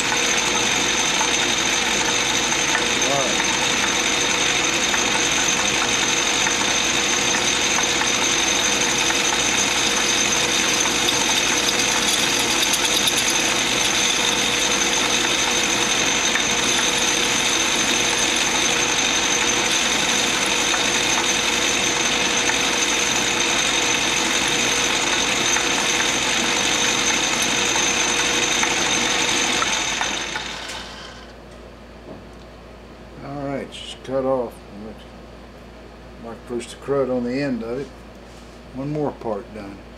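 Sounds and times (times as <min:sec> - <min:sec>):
metal lathe whining: 0:00.0 - 0:31.4.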